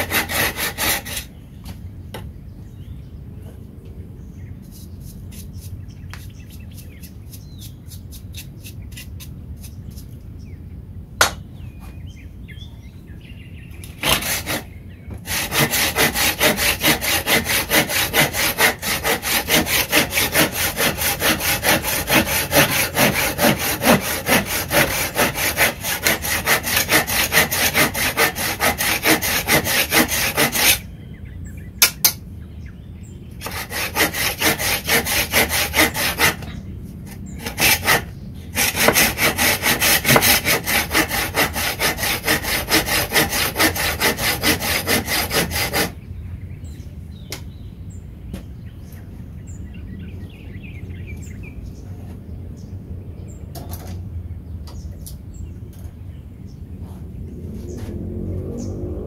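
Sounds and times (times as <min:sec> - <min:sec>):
saw cutting wooden board: 0:00.0 - 0:01.3, 0:14.0 - 0:30.8, 0:33.4 - 0:36.5, 0:37.1 - 0:46.0.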